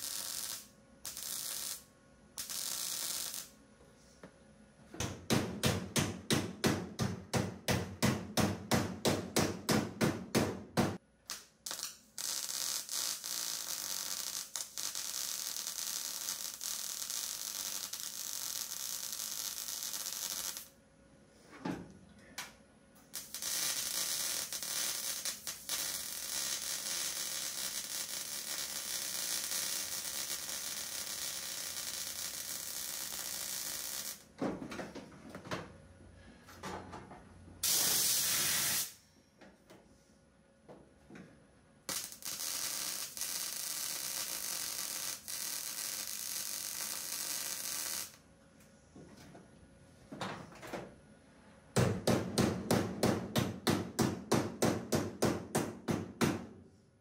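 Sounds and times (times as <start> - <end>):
wire-feed welder welding: 0.0 - 3.6, 11.2 - 20.8, 23.0 - 34.3, 37.6 - 39.0, 41.9 - 48.2.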